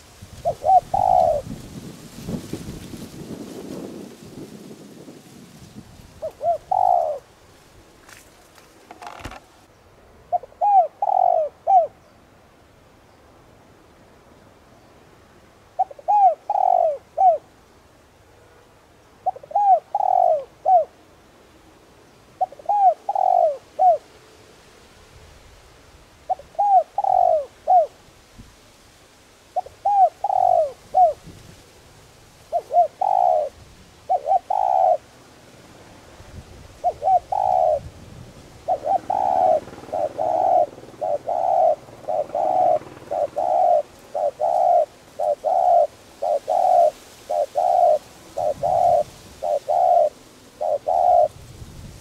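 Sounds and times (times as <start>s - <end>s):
dove cooing: 0.0s - 1.9s, 6.2s - 7.4s, 8.9s - 9.5s, 10.3s - 12.1s, 15.7s - 17.5s, 19.2s - 21.0s, 22.4s - 24.1s, 26.3s - 28.0s, 29.6s - 31.3s, 32.4s - 35.1s, 36.8s - 51.5s.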